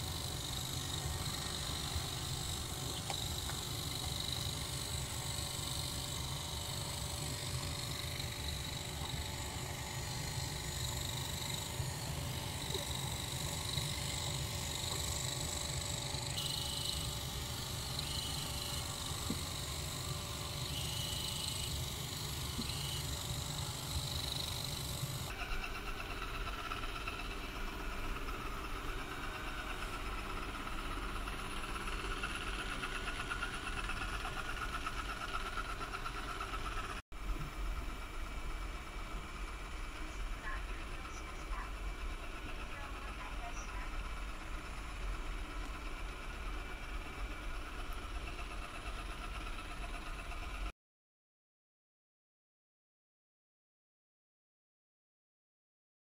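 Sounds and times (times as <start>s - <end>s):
robot vacuum motor whine: 0.0s - 50.7s.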